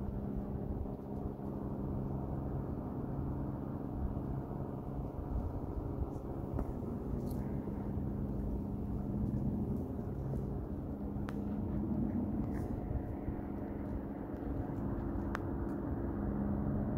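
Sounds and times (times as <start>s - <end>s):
low motor hum: 0.0s - 16.9s.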